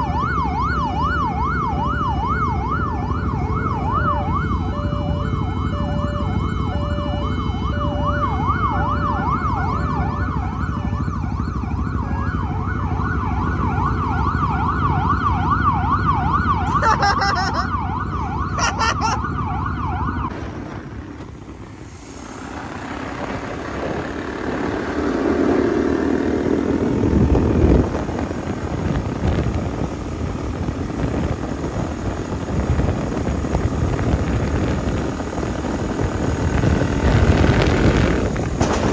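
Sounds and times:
police siren yelping: 0.0 - 20.3
idling engines rumble: 0.0 - 38.9
motorcycle engine: 0.0 - 38.9
siren blasts: 0.0 - 38.9
wind noise: 20.1 - 38.9.

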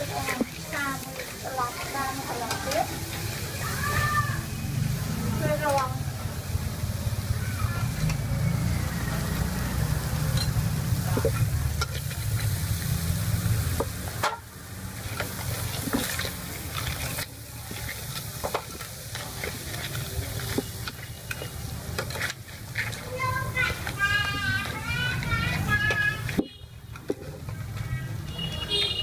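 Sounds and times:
metal spoon scraping a pan: 0.0 - 3.9, 9.2 - 28.0
food sizzling in a wok: 0.0 - 29.0.

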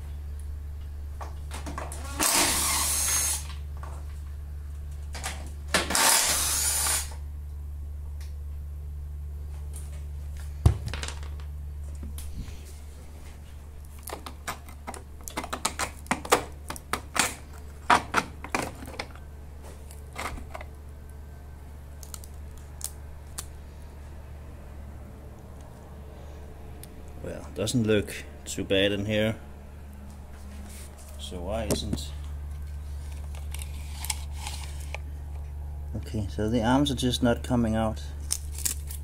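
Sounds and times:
steady low hum: 0.0 - 39.0
cordless drill running: 2.1 - 3.5, 5.8 - 7.2.

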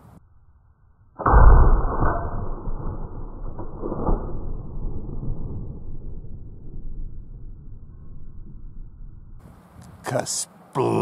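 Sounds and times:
muffled rifle shot boom: 1.2 - 9.4.

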